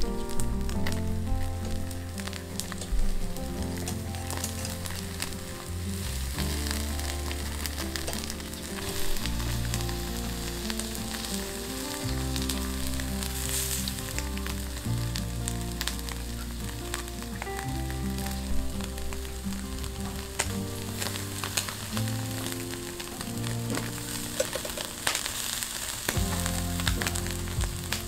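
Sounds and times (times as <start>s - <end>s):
fish sizzling on a grill: 0.0s - 28.0s
soft background music: 0.0s - 28.0s.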